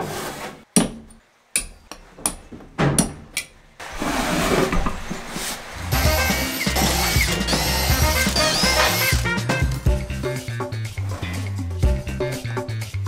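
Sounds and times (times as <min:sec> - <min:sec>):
cordless drill boring into wood: 0:05.9 - 0:09.3
background music: 0:05.9 - 0:13.0.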